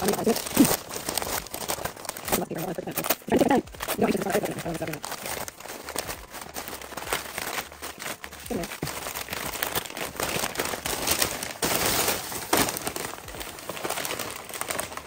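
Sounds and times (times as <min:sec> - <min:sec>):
paper crumpling and crinkling: 0:00.0 - 0:15.0.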